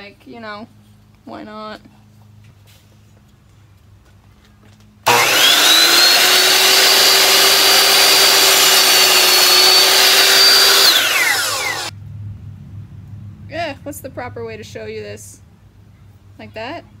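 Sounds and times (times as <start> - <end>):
miter saw motor whine: 5.1 - 11.9
saw blade cutting wood: 5.1 - 11.9.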